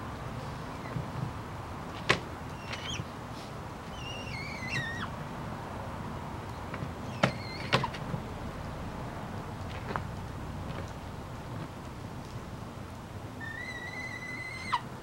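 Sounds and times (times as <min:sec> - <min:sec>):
hawk whining call: 0:13.4 - 0:14.9.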